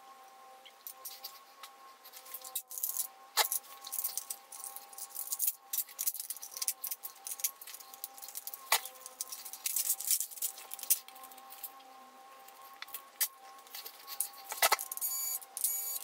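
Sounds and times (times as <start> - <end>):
small metal screws clinking: 2.2 - 11.8, 12.6 - 16.0
faint steady tone: 11.1 - 16.0.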